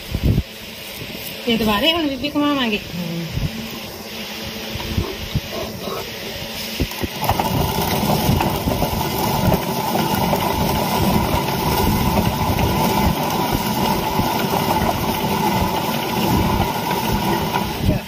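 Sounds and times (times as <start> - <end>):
stone mill grinding: 4.8 - 18.0.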